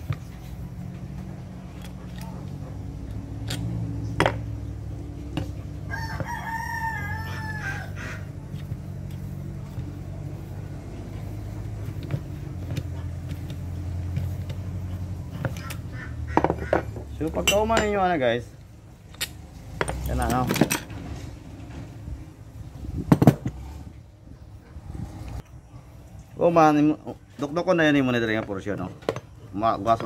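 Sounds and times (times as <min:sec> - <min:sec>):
rooster crowing: 0:05.8 - 0:08.3
tool tapping on metal: 0:15.3 - 0:18.2.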